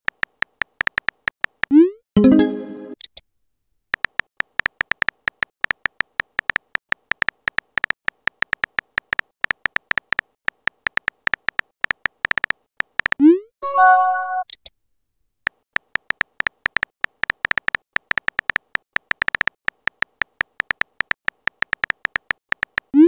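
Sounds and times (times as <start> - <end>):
electronic message tones: 2.2 - 3.0, 13.6 - 14.4
phone keyboard tap clicks: 15.5 - 22.9.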